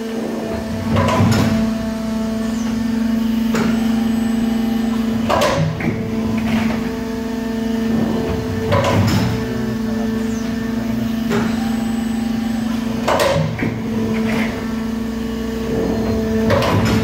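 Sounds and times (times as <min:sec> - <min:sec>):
moulding machine humming: 0:00.0 - 0:17.0.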